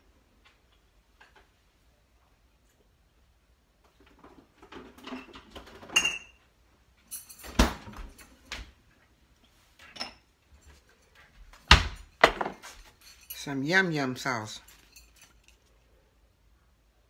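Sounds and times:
kitchen items rummaging: 9.8s - 13.7s.

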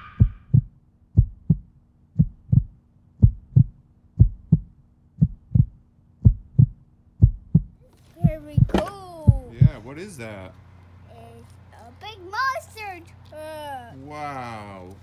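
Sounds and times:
heartbeat thumps: 0.0s - 9.9s
faint low hum: 0.0s - 15.0s.

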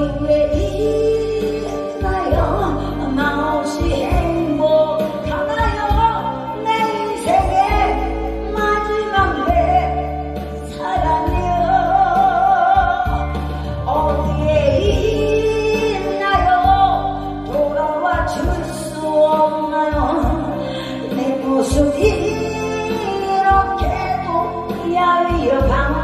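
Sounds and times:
backing track with bass line: 0.0s - 26.0s
woman singing into microphone: 0.0s - 26.0s.

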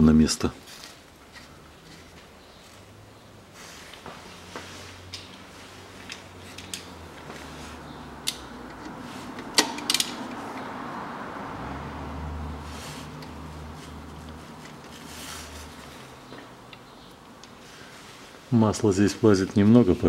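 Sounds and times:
socket wrench metal clicks: 9.6s - 10.2s.

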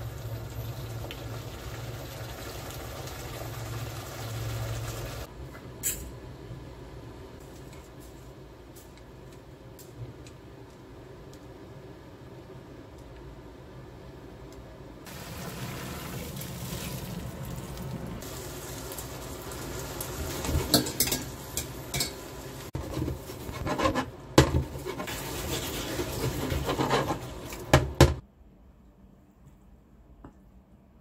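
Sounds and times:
sauce sizzling in a frying pan: 0.0s - 5.3s, 15.1s - 22.8s
utensils scraping a pan: 22.8s - 27.4s.

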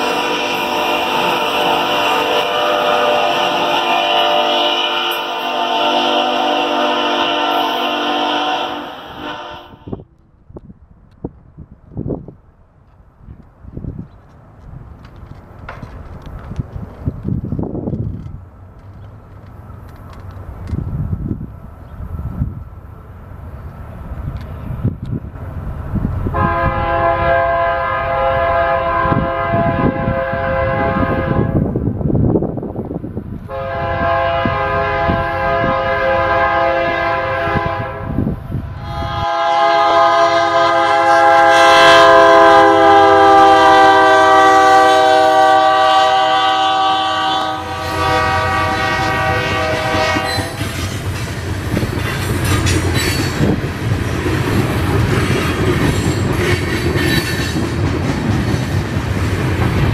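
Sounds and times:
locomotive air horn blasts: 0.0s - 10.0s, 26.3s - 31.6s, 33.5s - 50.8s
train wheels clicking over rail joints: 10.2s - 22.7s, 49.6s - 59.9s.

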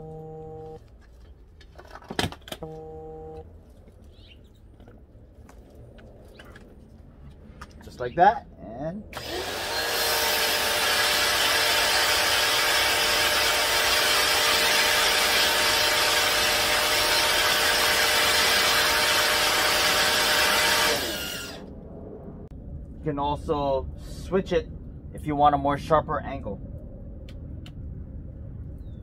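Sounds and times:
pressure washer hum: 9.2s - 21.7s.

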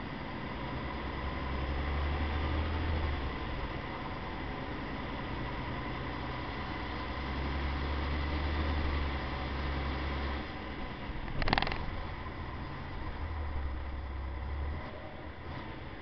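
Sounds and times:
truck engine droning: 0.0s - 16.0s
truck driving over rough ground: 11.0s - 16.0s
sharp rattle: 11.2s - 12.0s.

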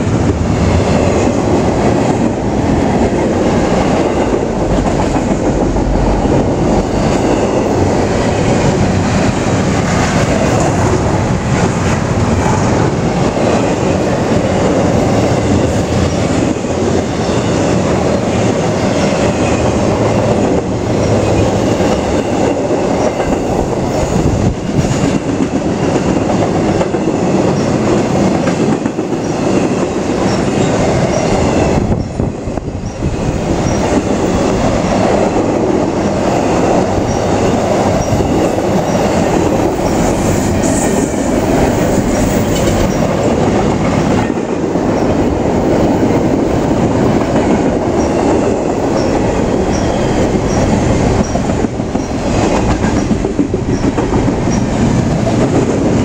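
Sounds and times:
freight train passing: 0.0s - 56.0s.

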